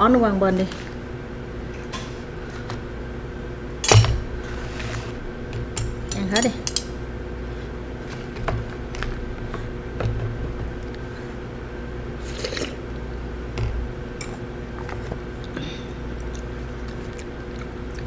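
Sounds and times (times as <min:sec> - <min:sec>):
spoon and chopsticks clicking bowl: 0:05.8 - 0:06.9
person chewing food: 0:14.3 - 0:18.0.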